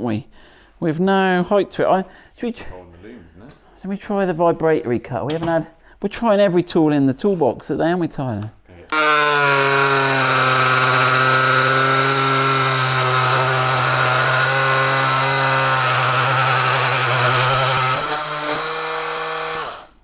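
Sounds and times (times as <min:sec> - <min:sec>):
oscillating multi-tool buzzing: 0:08.9 - 0:19.9
tool cutting plastic: 0:08.9 - 0:20.0.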